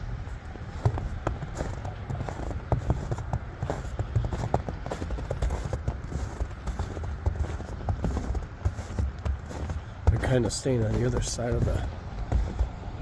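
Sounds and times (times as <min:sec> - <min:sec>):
wind rumbling on microphone: 0:00.0 - 0:13.0
footsteps on snowy wooden dock: 0:00.2 - 0:13.0.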